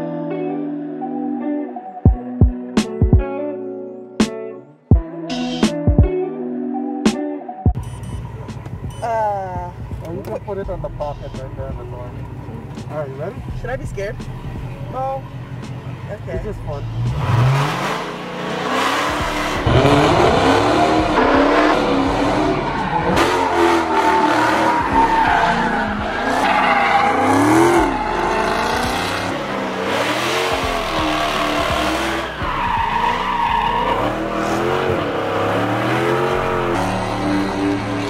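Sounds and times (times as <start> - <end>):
tires squealing: 15.6 - 38.0
car engine revving hard: 16.8 - 38.0.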